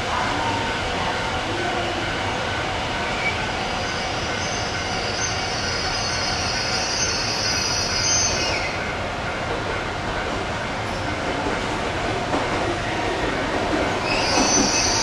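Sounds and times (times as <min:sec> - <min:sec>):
train wheels squealing: 0:03.1 - 0:08.9, 0:13.9 - 0:15.0
train running gear rumble: 0:08.3 - 0:15.0.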